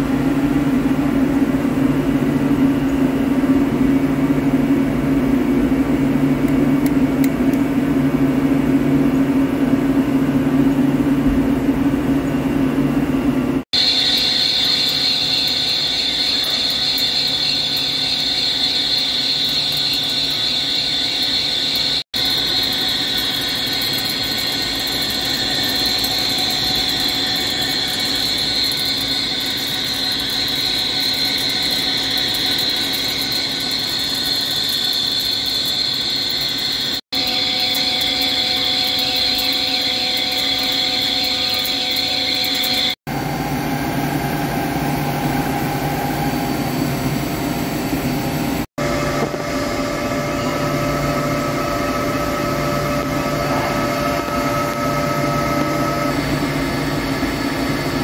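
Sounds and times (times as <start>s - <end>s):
lathe whining: 13.7s - 58.0s.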